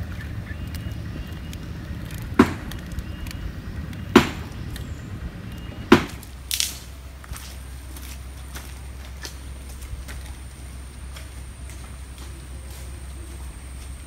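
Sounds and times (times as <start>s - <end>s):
low rumble: 0.0s - 14.0s
sharp loud hits: 2.3s - 2.9s, 4.1s - 4.9s, 5.7s - 6.8s.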